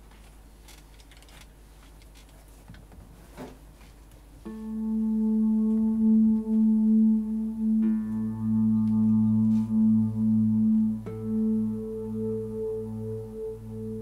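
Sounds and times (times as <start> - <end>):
sustained low guitar note: 4.5 - 14.0.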